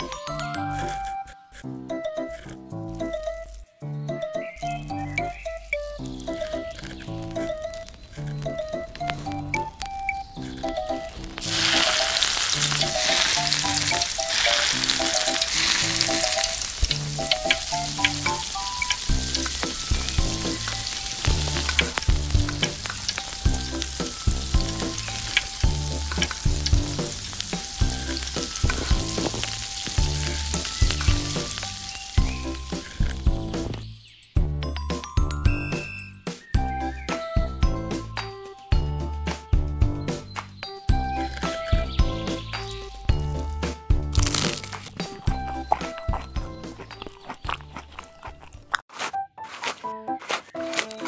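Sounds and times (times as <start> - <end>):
food deep-frying in oil: 6.0 - 33.7, 41.2 - 43.5, 44.2 - 48.8.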